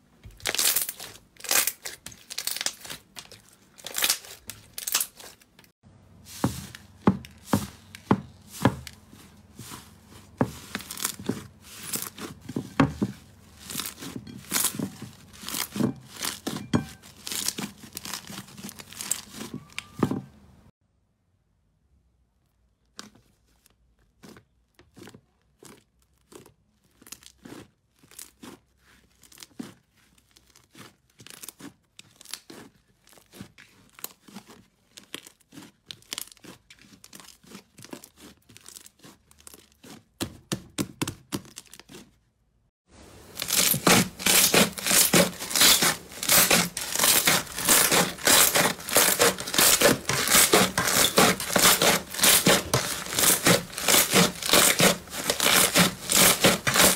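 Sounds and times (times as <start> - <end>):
slime crackling and popping: 0.3 - 5.6, 13.6 - 20.0, 24.2 - 40.2, 43.3 - 56.9.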